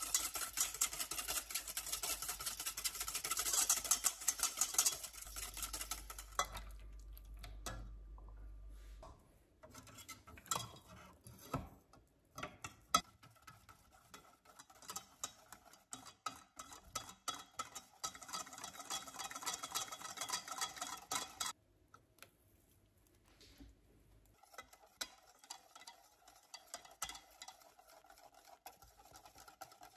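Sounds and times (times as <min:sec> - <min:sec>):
whisk clicking against metal pot: 0:00.0 - 0:08.0, 0:09.6 - 0:21.6, 0:24.2 - 0:29.9.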